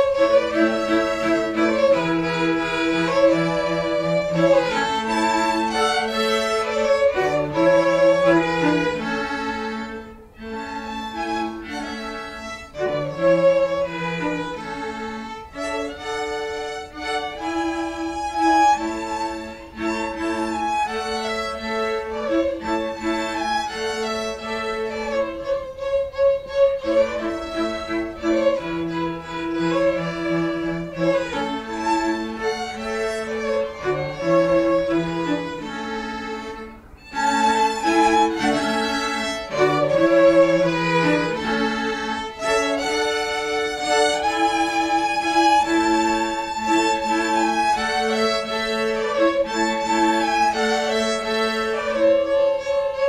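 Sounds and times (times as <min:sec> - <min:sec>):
string ensemble playing: 0:00.0 - 0:53.0.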